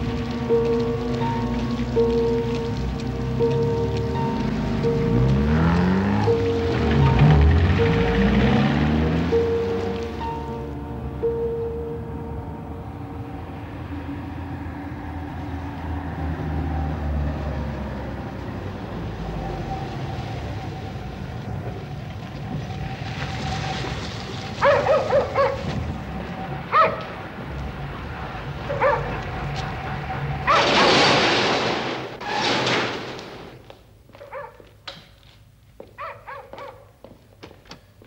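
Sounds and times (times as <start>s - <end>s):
car engine running low: 0.0s - 20.0s
dog barking: 24.6s - 25.7s, 26.7s - 27.1s, 28.7s - 29.3s, 30.5s - 30.7s, 34.2s - 34.7s, 36.0s - 37.0s.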